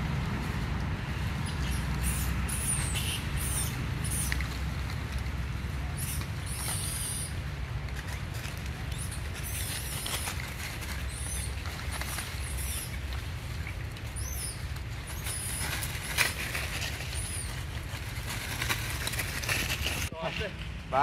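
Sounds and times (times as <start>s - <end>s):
monkeys running over dry leaves: 0.0s - 20.6s
high chirping squeaks: 1.4s - 4.4s, 5.9s - 7.4s, 8.7s - 20.1s.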